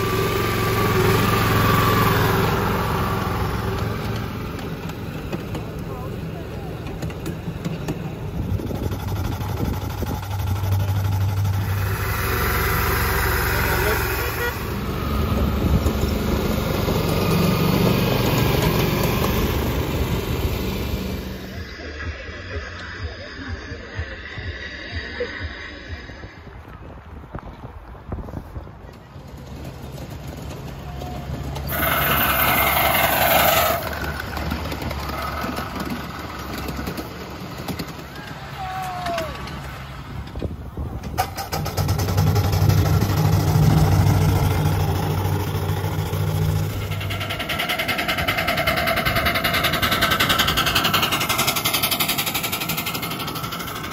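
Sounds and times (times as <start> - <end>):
small engine humming: 0.0 - 22.4, 29.3 - 39.8, 41.3 - 53.9
steam locomotive rumbling: 0.0 - 53.9.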